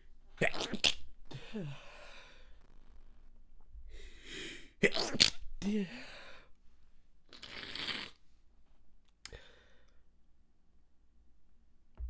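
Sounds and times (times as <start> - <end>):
person stifling sneezes: 0.4 - 1.9, 4.8 - 6.2.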